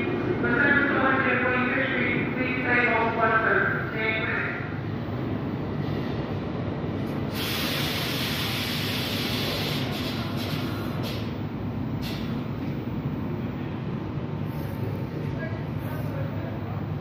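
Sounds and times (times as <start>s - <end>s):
train rumbling: 0.0s - 17.0s
air hiss: 7.3s - 11.3s.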